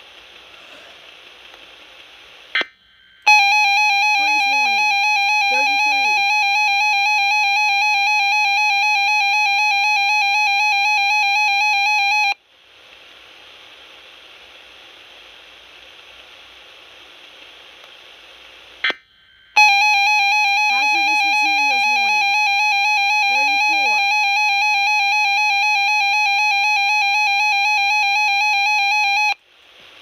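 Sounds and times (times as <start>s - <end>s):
faint receiver hiss: 0.0s - 7.1s, 12.4s - 26.1s, 29.3s - 30.0s
radio alarm tone: 3.3s - 12.4s, 19.6s - 29.4s.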